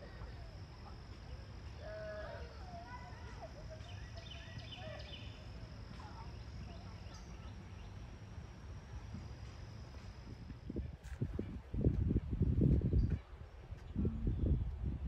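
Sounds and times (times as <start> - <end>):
steady low rumble: 3.1 - 15.0.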